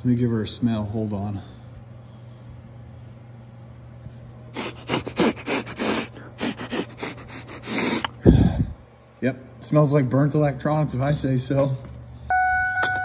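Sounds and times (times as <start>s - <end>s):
low steady hum: 0.0s - 13.0s
man sniffing hard: 4.5s - 8.8s.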